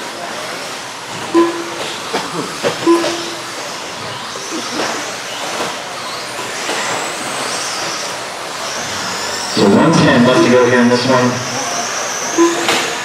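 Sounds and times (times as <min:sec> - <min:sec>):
electric motor whine: 0:01.0 - 0:13.0
short steady tones: 0:01.3 - 0:02.0, 0:02.8 - 0:03.6, 0:09.6 - 0:11.3, 0:12.2 - 0:13.0.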